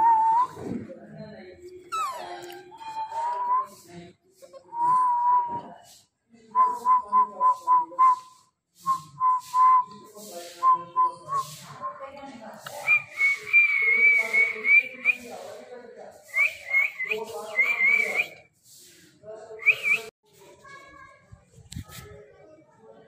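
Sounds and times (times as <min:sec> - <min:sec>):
person whistling: 0:12.8 - 0:15.2.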